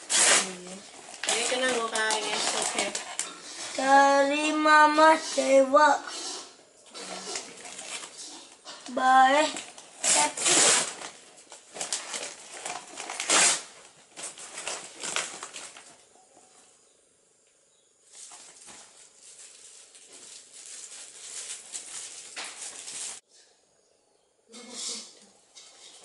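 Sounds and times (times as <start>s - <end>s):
wrapping paper rustling: 0.0s - 4.4s, 7.1s - 8.6s, 9.2s - 16.0s, 18.1s - 23.2s.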